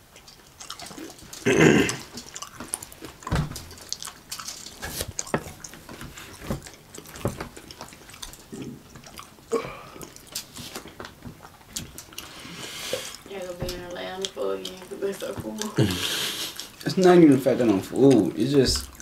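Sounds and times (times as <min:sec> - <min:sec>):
wet chewing and mouth smacks: 0:00.0 - 0:19.0.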